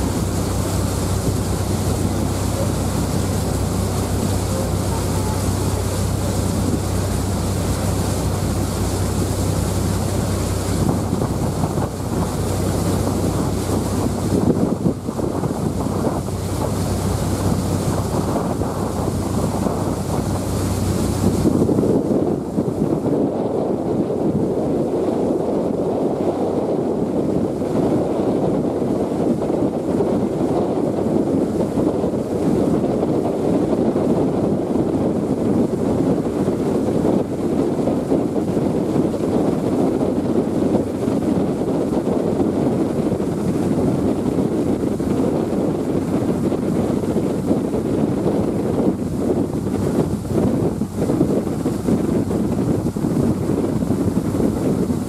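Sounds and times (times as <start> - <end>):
ferry engine rushing: 0.0 - 22.8
ferry rushing through water: 0.0 - 55.0
wind buffeting microphone: 0.0 - 55.0.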